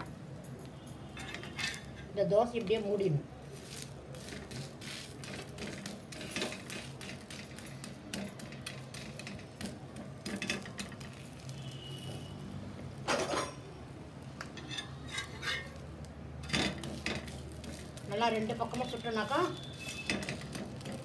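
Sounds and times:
metal spatula scraping a griddle: 0:01.1 - 0:02.1, 0:03.6 - 0:12.3, 0:14.4 - 0:21.0.

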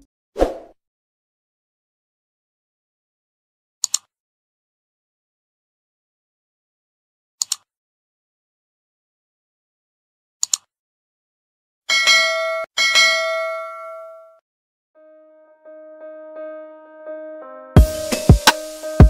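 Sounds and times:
bell chime: 0:11.9 - 0:14.4.

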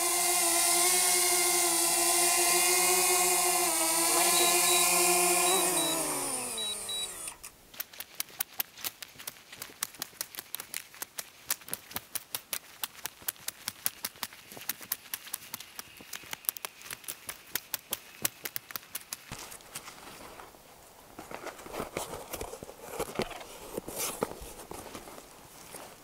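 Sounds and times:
drone propeller whine: 0:00.0 - 0:07.4
campfire crackling and popping: 0:07.7 - 0:19.4.

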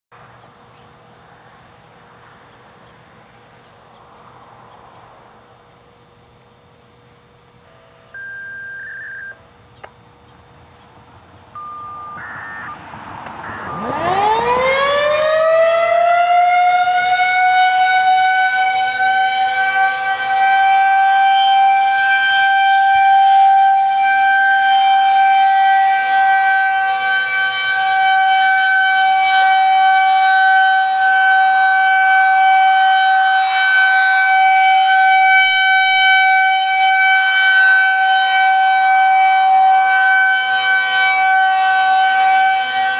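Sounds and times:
outdoor warning siren wailing: 0:07.6 - 0:09.6, 0:11.5 - 0:42.9
handheld radio activation tones: 0:07.7 - 0:09.5, 0:11.6 - 0:14.1.

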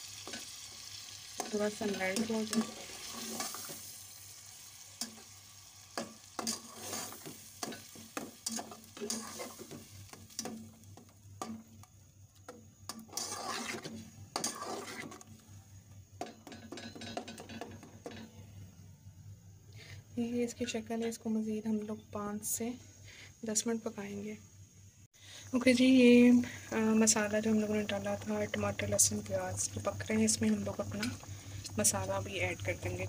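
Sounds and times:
low sizzle of frying: 0:00.0 - 0:19.3, 0:23.5 - 0:33.0
metal spatula scraping a pot: 0:01.4 - 0:03.9, 0:06.0 - 0:11.6, 0:12.5 - 0:15.4.

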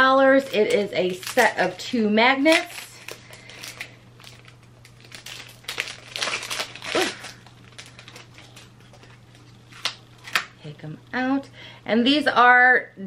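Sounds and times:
packaging crinkling and rustling: 0:00.3 - 0:10.5.

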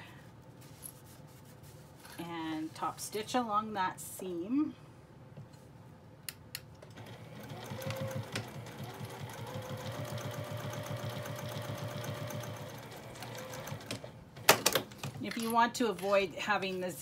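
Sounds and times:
sewing machine stitching: 0:06.9 - 0:14.1
sewing machine motor whine: 0:07.0 - 0:14.0.

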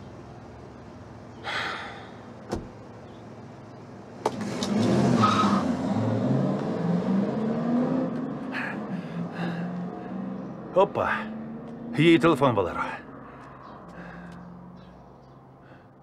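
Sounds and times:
car door shutting: 0:02.4 - 0:02.8.

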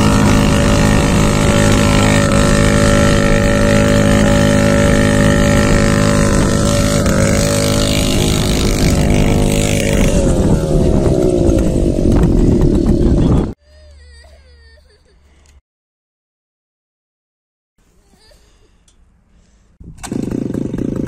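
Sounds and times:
two-stroke engine revving: 0:00.0 - 0:13.6, 0:20.0 - 0:21.0.

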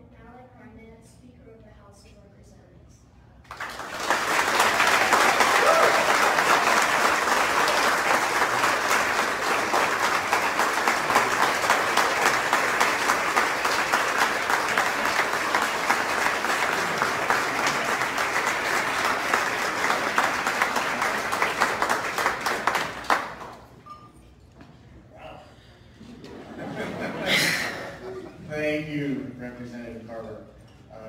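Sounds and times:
crowd applauding: 0:03.5 - 0:23.8.

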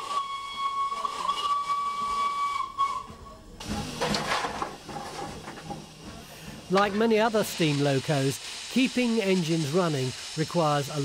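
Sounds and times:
steam hissing: 0:00.0 - 0:03.0, 0:03.6 - 0:11.0
steam whistle blowing: 0:00.0 - 0:03.8.

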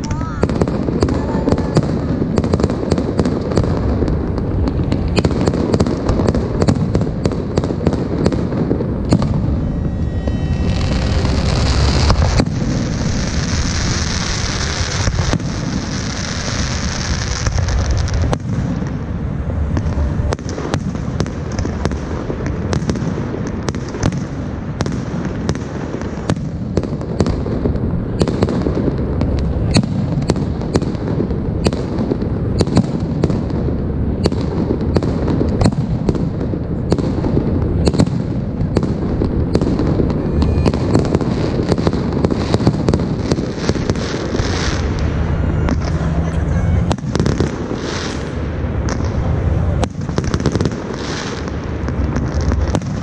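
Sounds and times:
fireworks rumbling and cracking: 0:00.0 - 0:53.0
high hiss: 0:08.8 - 0:20.8.

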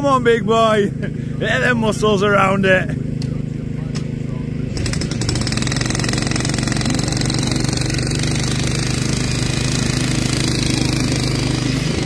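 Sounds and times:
electric breaker hammering ground: 0:04.7 - 0:12.0.

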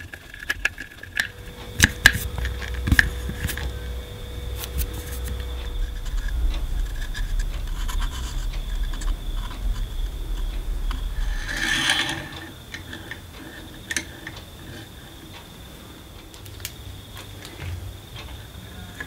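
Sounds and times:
low hum: 0:00.6 - 0:19.0
brief rasping rush: 0:01.3 - 0:12.7.

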